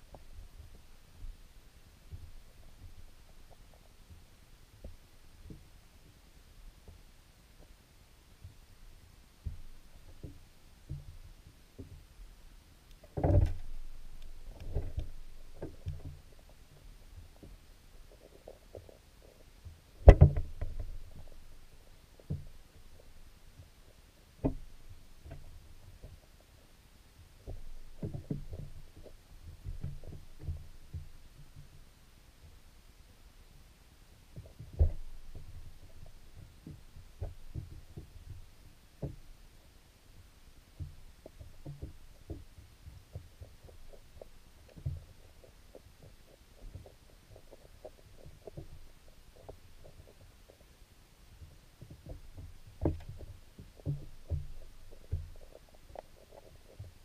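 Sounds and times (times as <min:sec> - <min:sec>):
moving water rumble: 0:00.0 - 0:57.0
muffled underwater knocks: 0:09.4 - 0:12.0, 0:13.1 - 0:17.6, 0:19.6 - 0:21.4, 0:22.2 - 0:23.1, 0:24.4 - 0:26.2, 0:27.4 - 0:31.8, 0:34.4 - 0:39.3, 0:40.8 - 0:50.6, 0:51.4 - 0:57.0.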